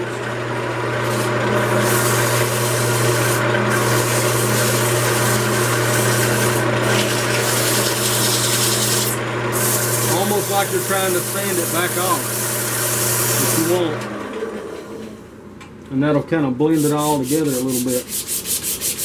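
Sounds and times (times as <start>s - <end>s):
lathe humming: 0.0s - 15.5s
sandpaper rubbing hiss: 16.7s - 19.0s.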